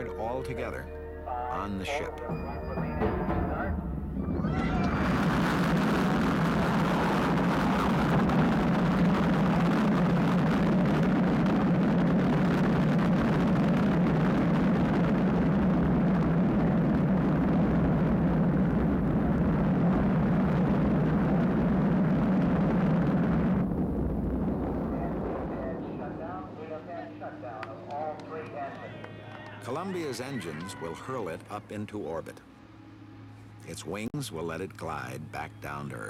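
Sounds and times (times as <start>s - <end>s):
rocket engines roaring: 3.9s - 32.4s.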